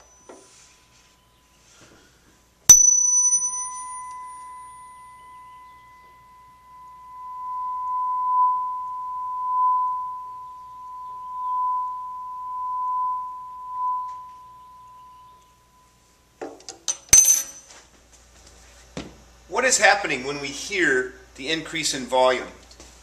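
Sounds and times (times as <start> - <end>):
tuning fork ringing: 0.0 - 1.8, 2.7 - 16.4, 17.0 - 17.6.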